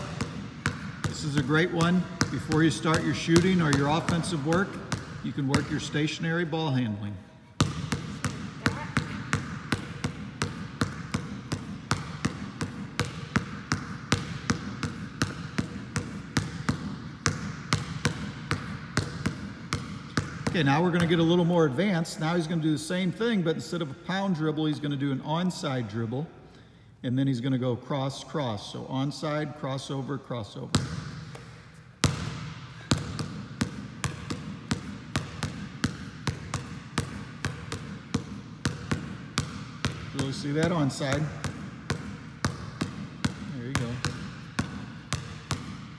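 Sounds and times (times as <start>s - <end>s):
basketball bouncing on gym floor: 0.0s - 6.8s, 7.5s - 21.6s, 30.6s - 45.9s.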